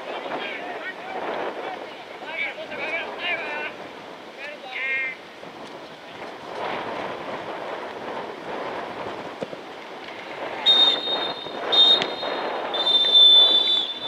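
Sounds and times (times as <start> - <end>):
referee's whistle blasts: 10.6 - 14.0.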